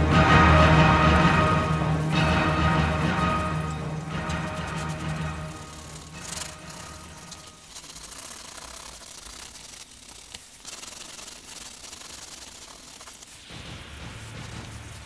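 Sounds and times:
music: 0.0 - 7.8, 13.4 - 15.0
pencil scratching on paper: 4.4 - 13.4.

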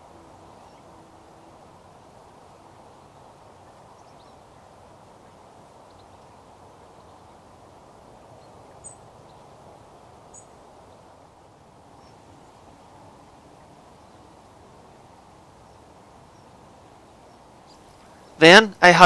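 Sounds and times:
steady low outdoor noise: 0.0 - 19.0
bird chirps: 10.3 - 11.0, 17.3 - 18.4.

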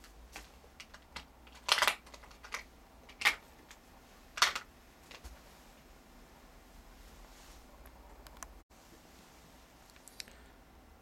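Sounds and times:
cloth rustling against camera: 6.6 - 7.9.

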